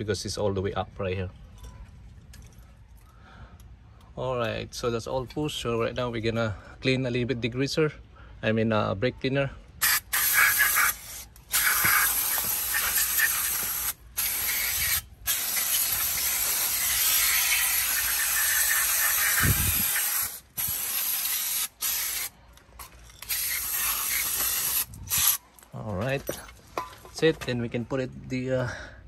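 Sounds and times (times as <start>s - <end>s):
aerosol spray hissing: 9.8s - 22.3s, 23.3s - 25.4s.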